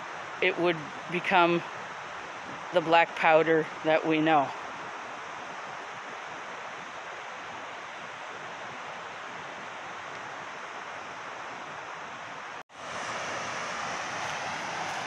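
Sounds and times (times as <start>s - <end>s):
river water rushing over rocks: 4.4s - 15.0s.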